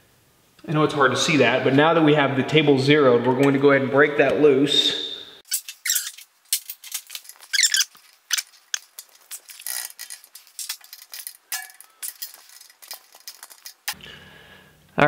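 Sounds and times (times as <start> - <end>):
small metal clicks and scrapes: 5.5 - 14.0.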